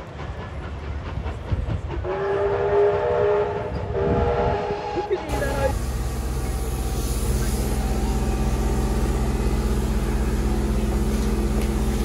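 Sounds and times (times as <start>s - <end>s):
train rumbling on track: 0.0s - 12.0s
train horn blasts: 2.0s - 5.7s.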